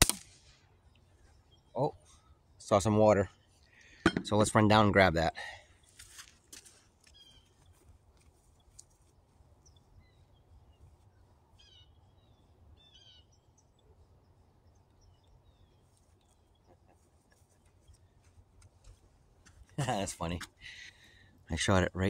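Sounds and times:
faint bird chirps: 0.7 - 4.0, 7.1 - 7.8, 8.4 - 18.3.

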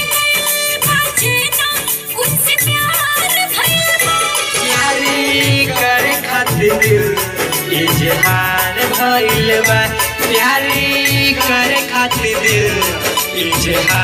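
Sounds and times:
folk song with steady beat: 0.0 - 14.0
person singing: 0.0 - 14.0.

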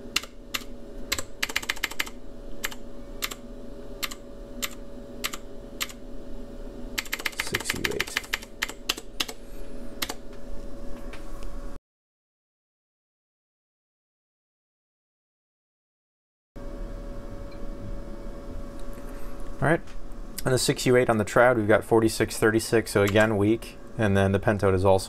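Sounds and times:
steady hum: 0.0 - 11.8, 16.6 - 25.0
keypad buttons clicking: 0.1 - 3.4, 7.0 - 9.4.

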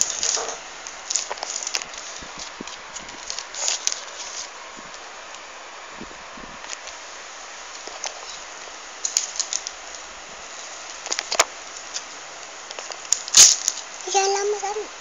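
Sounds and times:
paper rustling and crumpling: 0.0 - 5.4, 7.7 - 8.4, 9.0 - 13.9.

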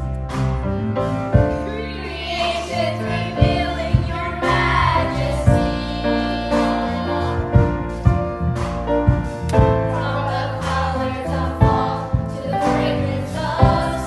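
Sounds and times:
instrumental accompaniment with beat: 0.0 - 14.0
children's choir singing: 1.5 - 7.8, 10.0 - 14.0.

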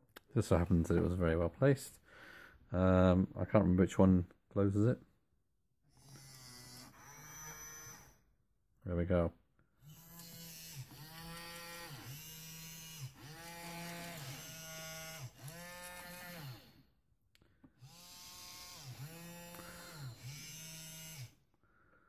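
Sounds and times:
small motors whirring: 5.9 - 8.2, 9.8 - 16.9, 17.8 - 21.4.

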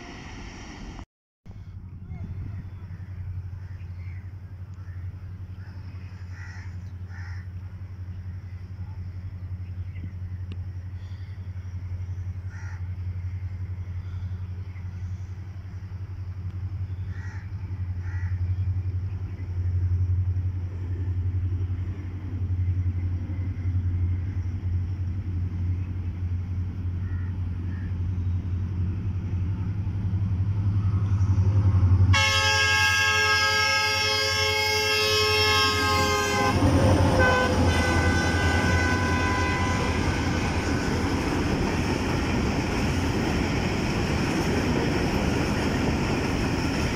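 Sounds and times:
freight train rumble: 0.0 - 46.9
train horn blast: 32.0 - 41.4.

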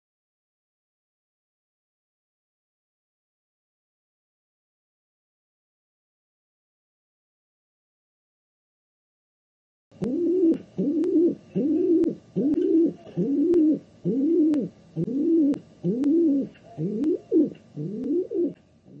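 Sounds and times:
pigeon cooing: 10.0 - 19.0.

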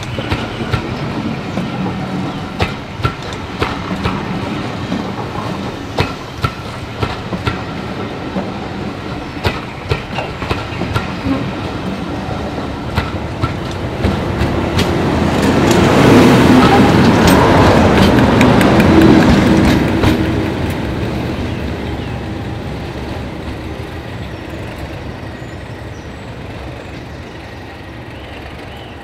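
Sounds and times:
train wheels clicking over rail joints: 0.0 - 21.3
diesel locomotive engine: 0.0 - 29.0.

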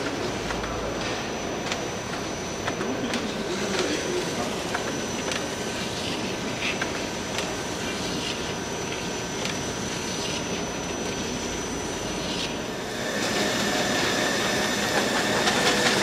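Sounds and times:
machine hum of belts and rollers: 0.0 - 16.0
thin high whine: 0.0 - 16.0.

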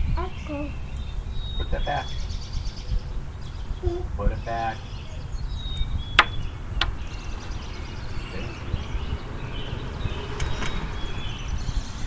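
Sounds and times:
birds chirping faintly: 0.0 - 12.0
wind buffeting microphone: 0.0 - 12.0
sharp clicks: 5.7 - 7.0.

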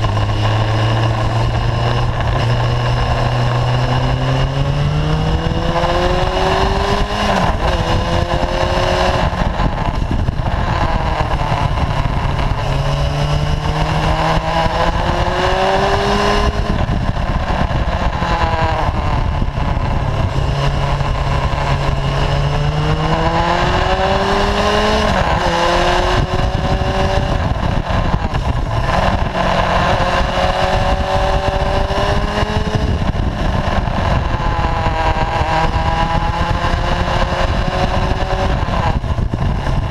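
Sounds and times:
motorcycle engine revving: 0.0 - 39.9
wind and road rush: 0.0 - 39.9.

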